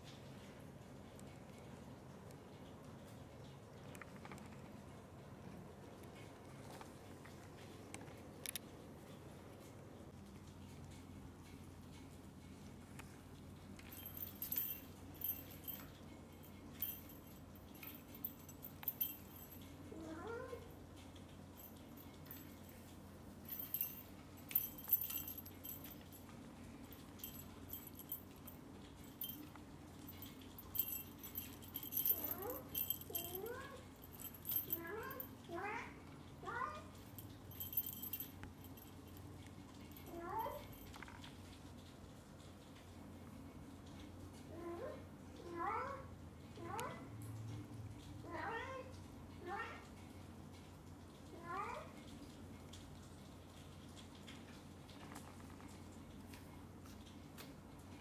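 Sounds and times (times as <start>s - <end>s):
jingle ball toy tinkling: 13.8s - 20.7s, 21.4s - 35.4s, 36.5s - 41.1s.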